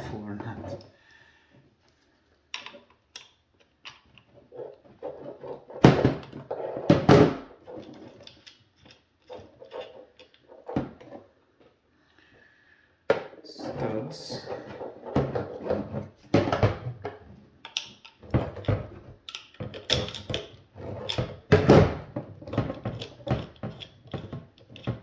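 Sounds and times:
clicks and knocks of handling tools: 0:01.8 - 0:04.8, 0:07.7 - 0:11.8, 0:17.0 - 0:21.6, 0:22.4 - 0:25.0.

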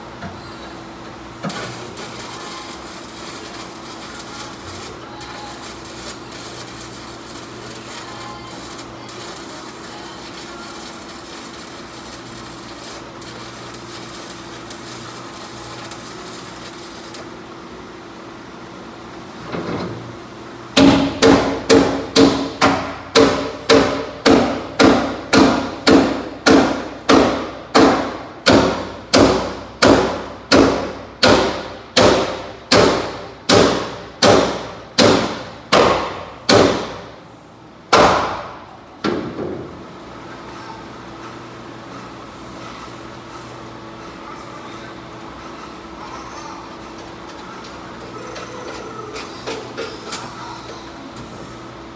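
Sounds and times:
welding arc crackling: 0:01.0 - 0:18.5.

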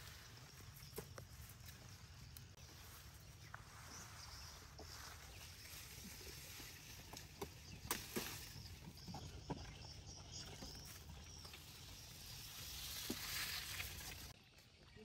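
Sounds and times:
cane leaves rustling: 0:00.0 - 0:08.6, 0:11.3 - 0:14.4.

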